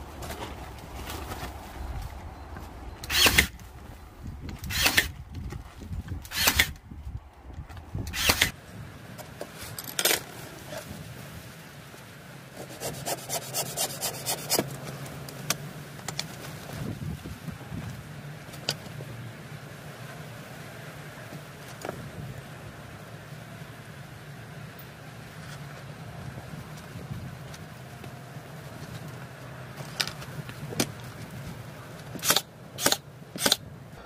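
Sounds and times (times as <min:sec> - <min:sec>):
nail gun shots: 0:03.1 - 0:03.5, 0:04.7 - 0:05.1, 0:06.3 - 0:06.7, 0:08.1 - 0:08.5, 0:32.2 - 0:33.6.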